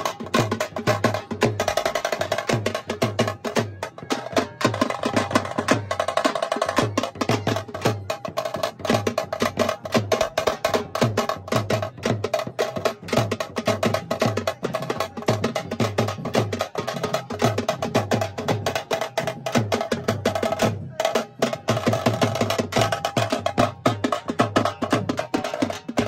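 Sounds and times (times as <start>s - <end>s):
fast dense drumming: 0.0s - 26.0s.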